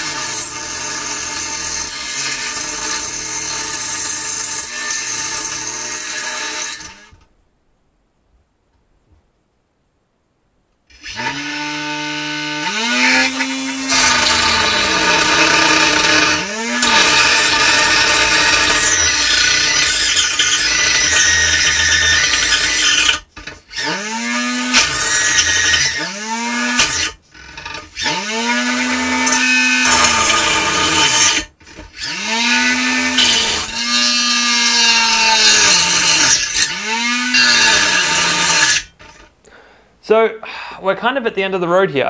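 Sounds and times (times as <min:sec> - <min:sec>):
saw blade grinding into plastic: 0:12.6 - 0:24.0, 0:26.7 - 0:39.3.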